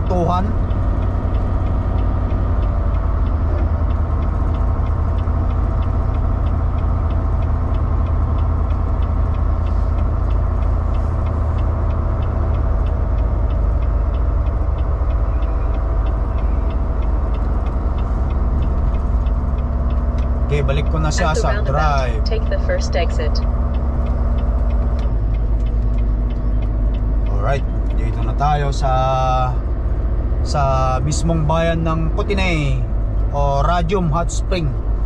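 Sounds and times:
diesel truck engine rumble: 0:00.0 - 0:35.0
faint regular ticking: 0:00.0 - 0:35.0
road noise: 0:00.0 - 0:35.0.

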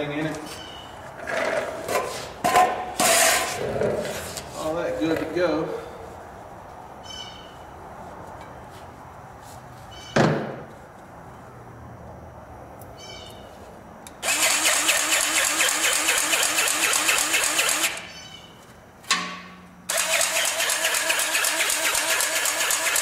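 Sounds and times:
powered grease gun pumping: 0:14.2 - 0:18.1, 0:19.9 - 0:23.0.

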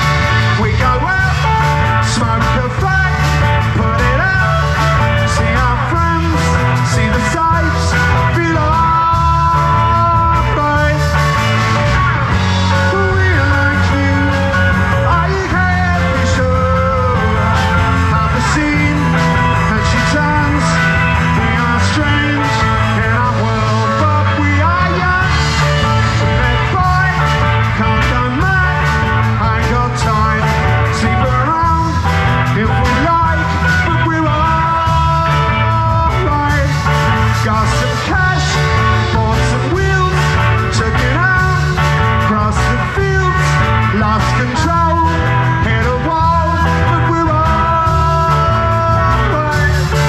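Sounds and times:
live rock band playing: 0:00.0 - 0:50.0
man singing lead: 0:00.0 - 0:50.0.

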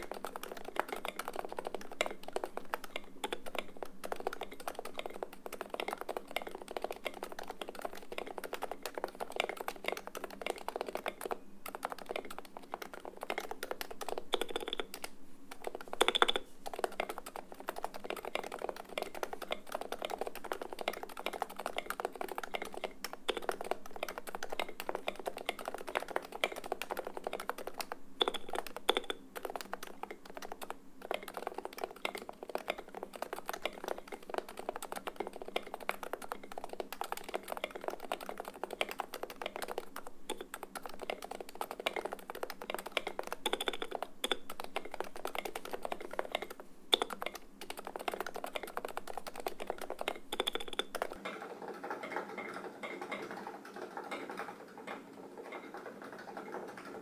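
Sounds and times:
fast keyboard typing: 0:00.0 - 0:57.0.

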